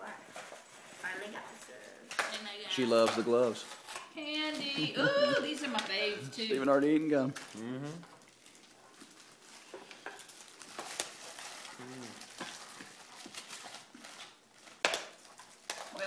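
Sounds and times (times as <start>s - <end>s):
packaging rustling and crinkling: 7.2s - 16.0s.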